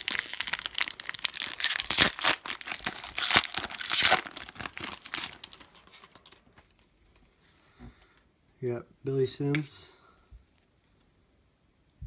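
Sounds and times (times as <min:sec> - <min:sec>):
foil wrapper tearing and crinkling: 0:00.0 - 0:06.4.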